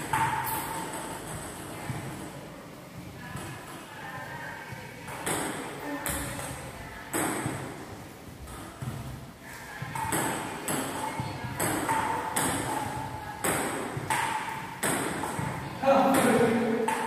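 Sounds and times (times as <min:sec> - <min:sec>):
ball bouncing on table: 0:00.0 - 0:02.3, 0:09.8 - 0:17.0
table tennis ball hitting paddles: 0:00.0 - 0:02.4, 0:05.0 - 0:17.0.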